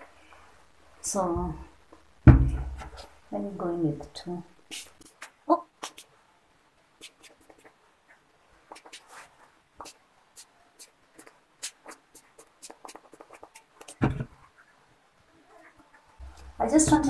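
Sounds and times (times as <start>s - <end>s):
dull bump: 2.3s - 3.0s
fingers rubbing hair: 7.0s - 14.0s.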